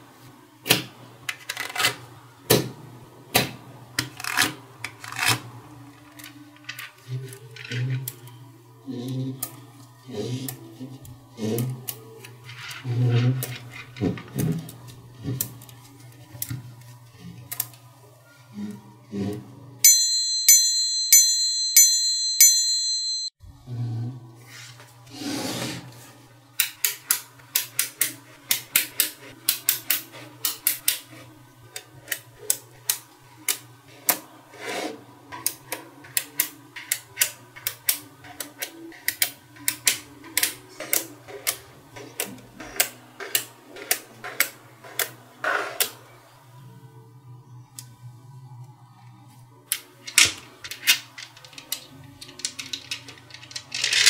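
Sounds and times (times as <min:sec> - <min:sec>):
magnet balls clicking: 0:50.1 - 0:54.0.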